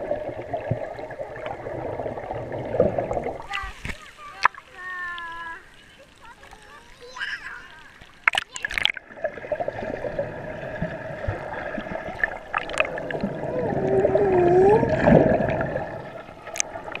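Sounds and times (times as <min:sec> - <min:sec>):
underwater sloshing and bubbling: 0:00.0 - 0:17.0
wavering voice-like hum: 0:13.3 - 0:15.2.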